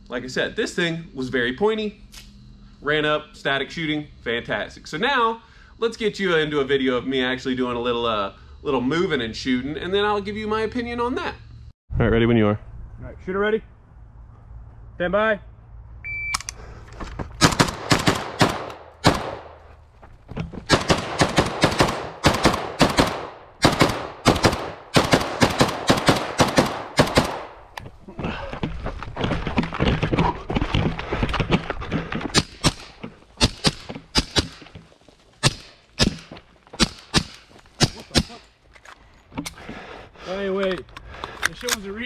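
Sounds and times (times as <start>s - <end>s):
rifle gunshots: 17.4s - 19.6s, 20.7s - 27.6s, 32.4s - 34.6s
suppressed pistol shots: 17.4s - 19.6s, 20.7s - 27.7s, 32.4s - 34.6s, 35.4s - 38.4s.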